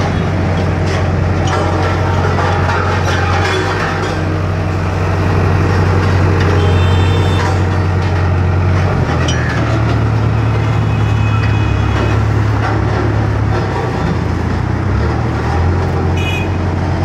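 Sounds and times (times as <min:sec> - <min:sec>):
road roller diesel engine humming: 0:00.0 - 0:17.0.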